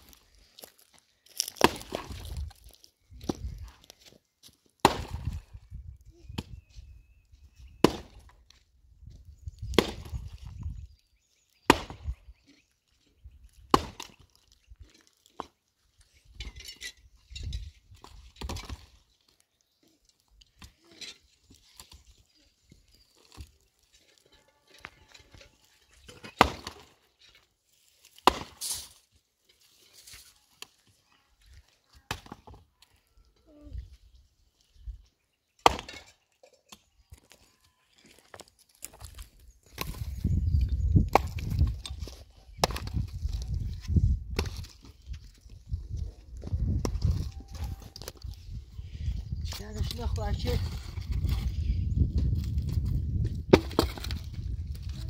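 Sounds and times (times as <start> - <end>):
wood being handled and broken: 0.0 - 6.6, 7.8 - 33.0, 35.6 - 55.0
axe chopping wood: 1.4 - 2.4, 4.8 - 5.6, 7.8 - 8.4, 9.7 - 10.2, 11.6 - 12.2, 13.7 - 14.2, 18.0 - 18.9, 26.2 - 27.0, 28.2 - 28.8, 35.6 - 36.1, 41.0 - 41.8, 42.6 - 43.1, 53.5 - 54.2.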